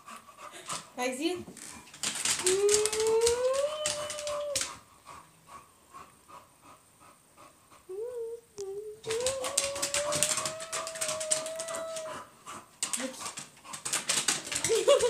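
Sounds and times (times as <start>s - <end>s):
claws clicking on wooden floor: 1.5s - 4.8s, 9.0s - 15.0s
dog whining: 2.3s - 4.8s, 8.0s - 12.3s.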